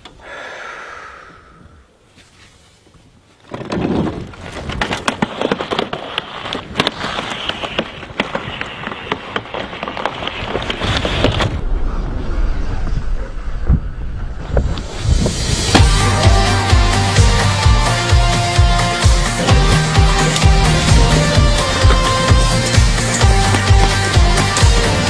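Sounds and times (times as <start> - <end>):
wind rush: 10.3 - 15.9.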